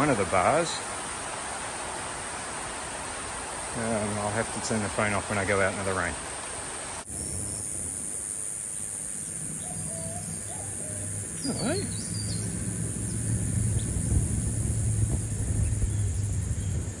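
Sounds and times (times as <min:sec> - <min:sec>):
steady high hiss: 0:00.0 - 0:17.0
guineafowl calling: 0:09.6 - 0:12.0
low rumble: 0:10.3 - 0:17.0.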